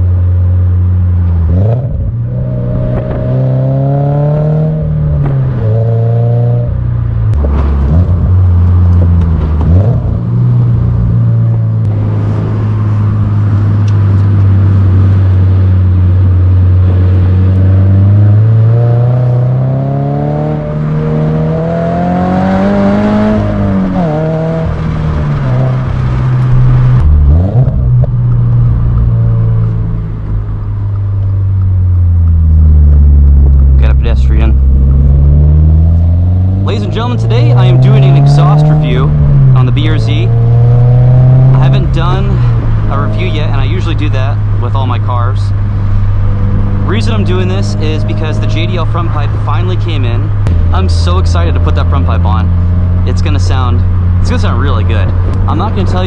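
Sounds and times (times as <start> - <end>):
car engine accelerating through gears: 1.2 - 44.6.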